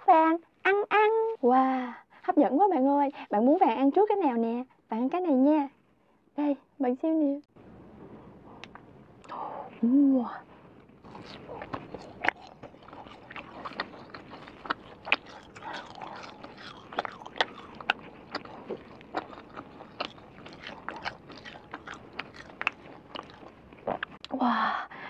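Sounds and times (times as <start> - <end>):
chewing with wet mouth clicks: 11.0 - 24.2.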